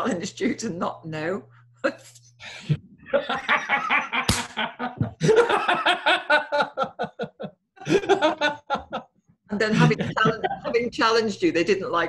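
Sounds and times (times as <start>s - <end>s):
man and woman laughing: 2.6s - 10.9s.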